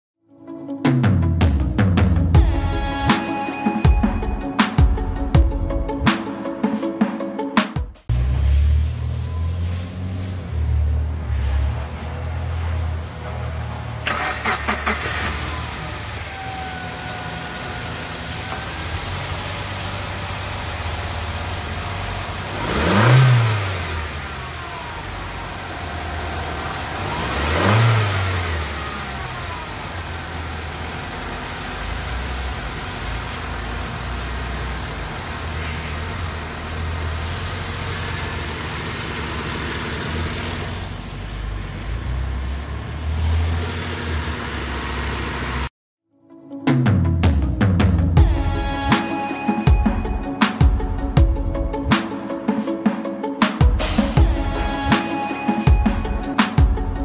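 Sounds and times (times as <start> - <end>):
car engine idling: 8.1 - 45.7
engine revving: 8.1 - 45.7.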